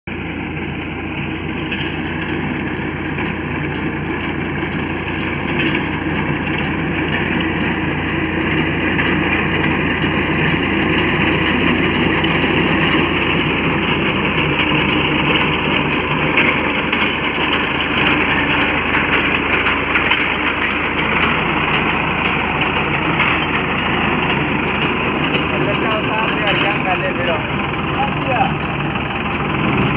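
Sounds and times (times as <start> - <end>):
tractor diesel engine running: 0.0 - 29.9.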